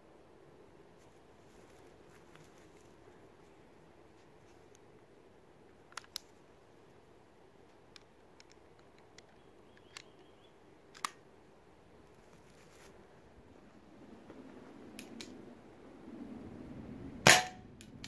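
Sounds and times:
pistol metallic clicks: 10.9 - 11.2.

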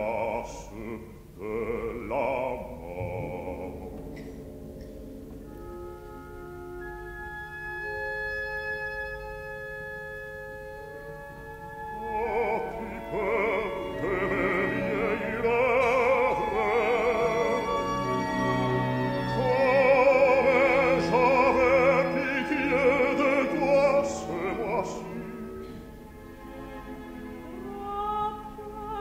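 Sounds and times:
operatic singing voice: 0.0 - 4.4, 11.9 - 25.5
orchestra: 0.0 - 29.0.

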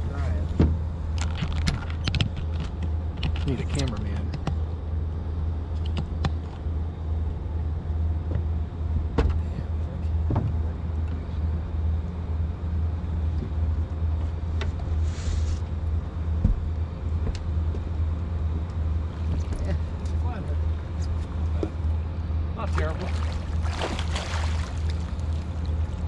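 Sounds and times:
low motor rumble: 0.0 - 26.0
brief hiss: 15.0 - 15.7.

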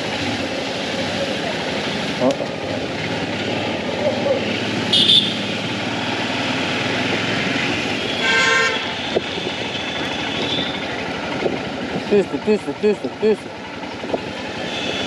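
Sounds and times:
motorcycle engine running: 0.0 - 8.2, 8.9 - 15.0
road and wind noise: 0.0 - 15.0
vehicle horn honking: 4.9 - 5.5, 8.0 - 9.0, 9.7 - 10.8.

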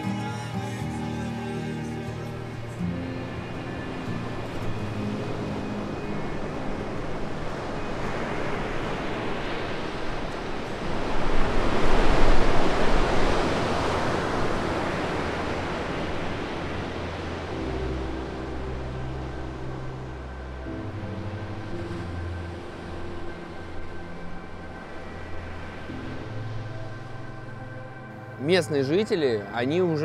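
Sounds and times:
waves breaking: 0.0 - 30.0.

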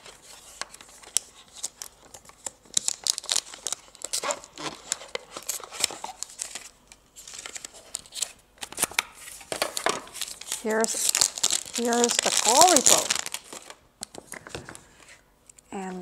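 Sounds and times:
plastic film crinkling: 0.0 - 15.1.

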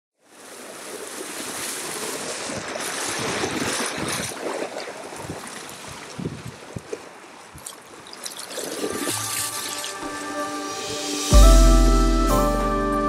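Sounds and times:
small waves breaking on shore: 0.2 - 10.7.

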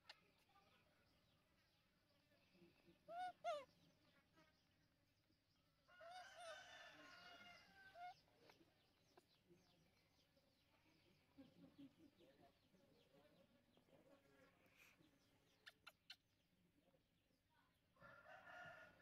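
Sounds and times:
faint rooster crowing: 5.9 - 8.2, 18.0 - 19.0.

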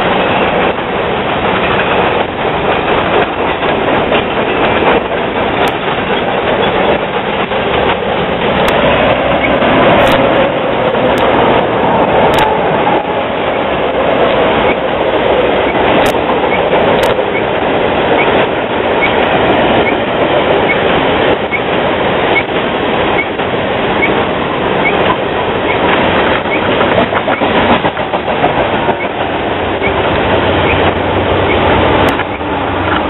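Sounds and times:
freight train passing: 0.0 - 33.0
wheels clicking over rail joints: 0.0 - 33.0.

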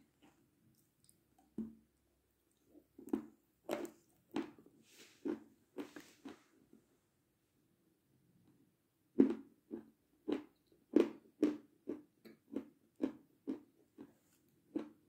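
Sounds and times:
wet chewing and lip smacks: 0.2 - 1.8.

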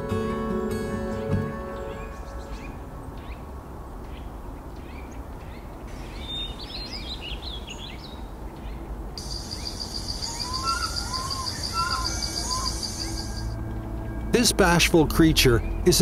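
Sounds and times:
lower bird calls: 4.1 - 13.6
high bird chirps: 9.2 - 13.6
high pulsing trill: 9.2 - 13.6.

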